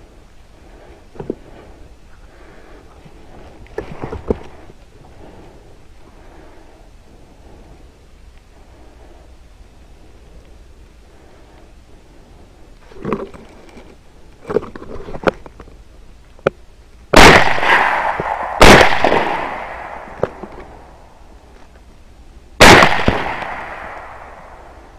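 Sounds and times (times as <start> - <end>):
rifle shots: 17.2 - 20.5, 22.6 - 24.7.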